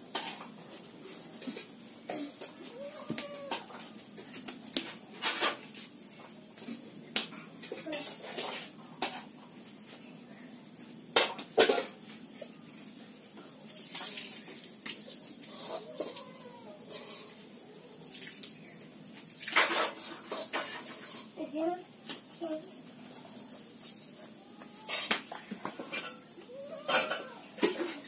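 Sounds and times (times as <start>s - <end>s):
insects chirring: 0.0s - 28.0s.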